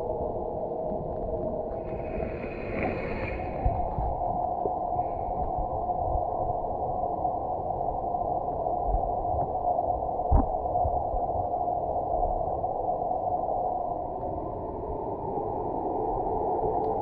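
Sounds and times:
dull underwater hiss: 1.7s - 6.1s.

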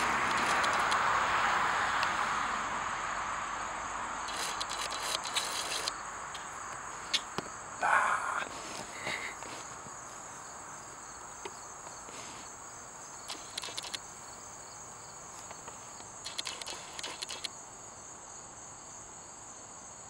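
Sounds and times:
insects chorus in trees: 0.0s - 20.0s
soft scuffs: 8.5s - 12.6s.

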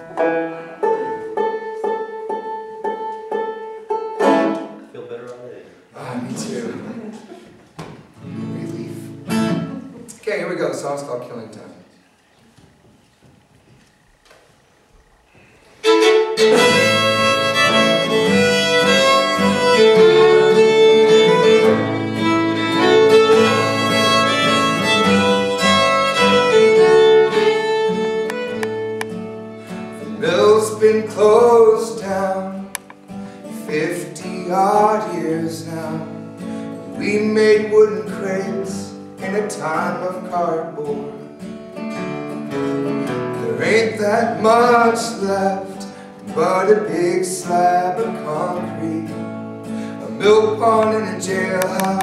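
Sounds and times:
banjo: 0.0s - 4.8s
acoustic guitar: 0.0s - 5.1s, 5.9s - 10.4s, 15.2s - 52.0s.

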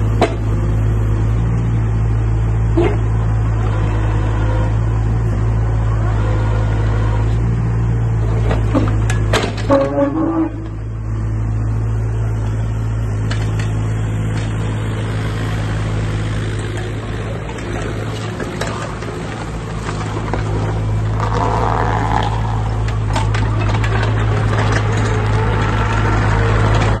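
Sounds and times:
diesel engine running: 0.0s - 27.0s
machine clanks and rattles: 8.3s - 10.8s, 16.4s - 27.0s.

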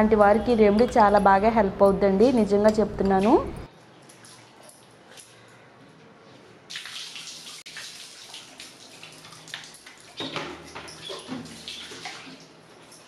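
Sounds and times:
water splashing onto tiled floor: 6.7s - 13.0s.

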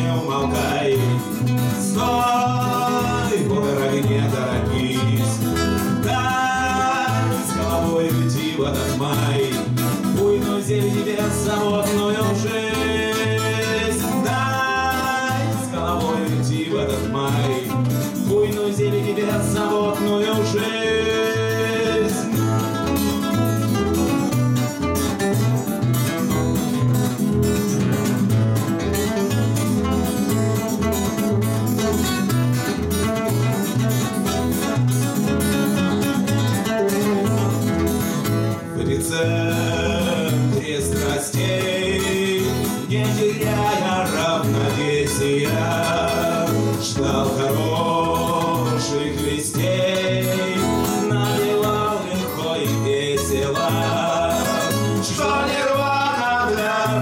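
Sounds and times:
men singing: 0.0s - 23.7s, 38.6s - 57.0s
acoustic guitars strummed: 0.0s - 57.0s.

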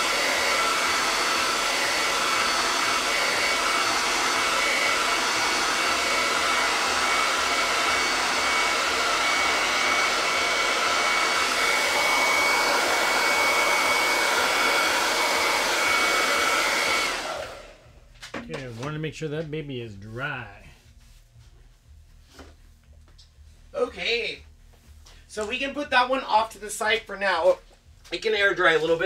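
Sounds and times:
hair dryer running: 0.0s - 18.1s.

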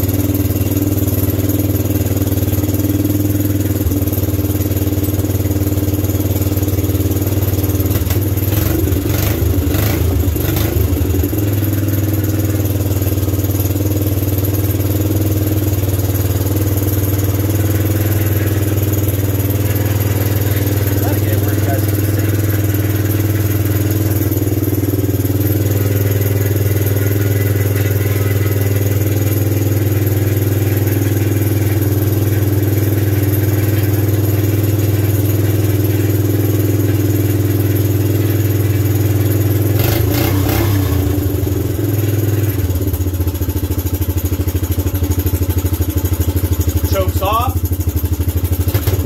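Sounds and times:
quad engine idling: 0.0s - 49.0s
brief engine clatter: 48.6s - 49.0s.

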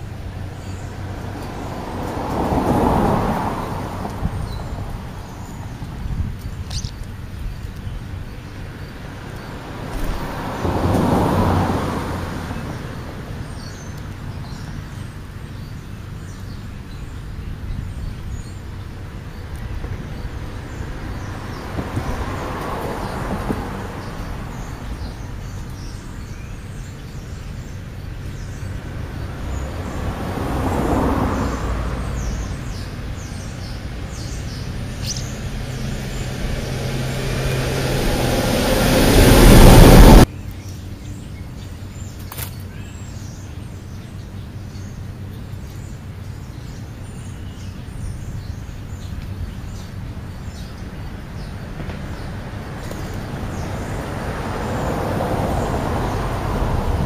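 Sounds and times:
vehicles passing: 0.0s - 57.0s.

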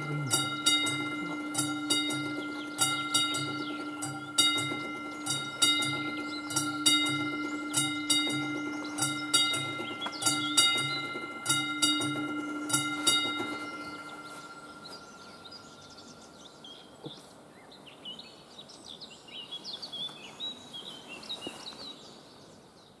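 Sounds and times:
level crossing bell ringing: 0.0s - 17.0s
birds singing and chirping: 0.0s - 23.0s.

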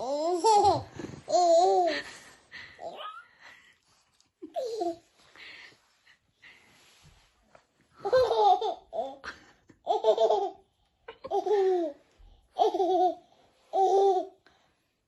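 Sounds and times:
baby laughing and babbling: 0.0s - 2.0s, 12.6s - 14.4s.

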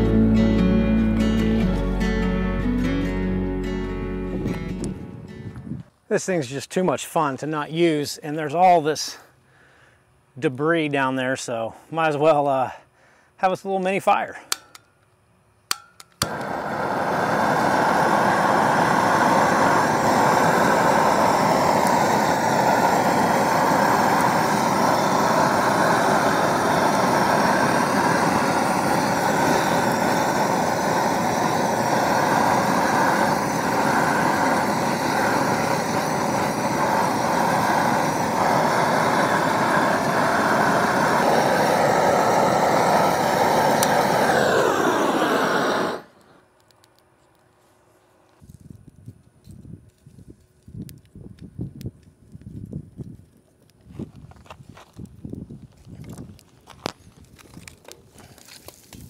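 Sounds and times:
gas torch hissing: 16.2s - 47.0s.

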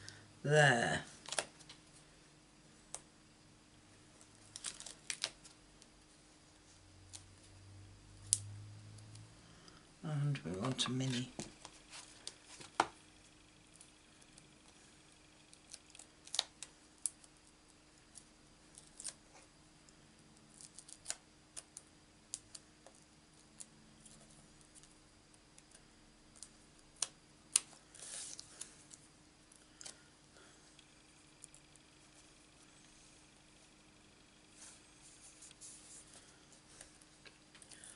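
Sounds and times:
paper rustle: 4.4s - 5.6s.

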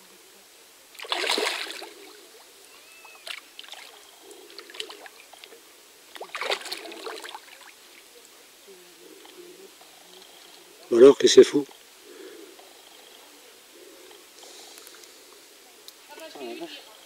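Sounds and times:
water drips and sloshes: 0.9s - 8.1s
fish splashing in water: 1.0s - 8.1s.

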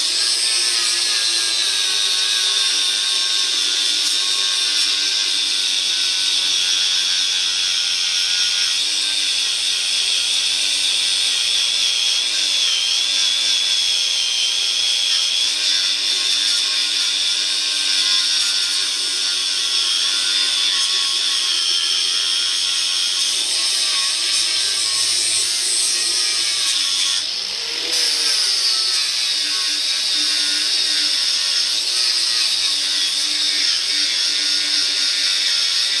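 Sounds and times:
angle grinder grinding metal: 0.0s - 36.0s.

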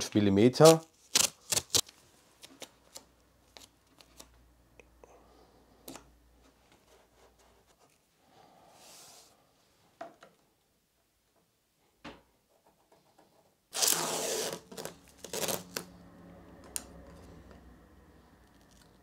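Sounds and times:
tape ripping off roll: 0.6s - 2.6s, 13.7s - 15.9s.

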